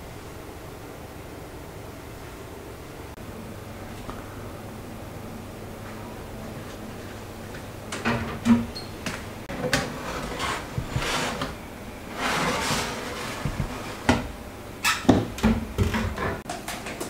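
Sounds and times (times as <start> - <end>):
baking tray clattering and scraping: 7.9 - 16.5
oven door banging shut: 8.0 - 8.9.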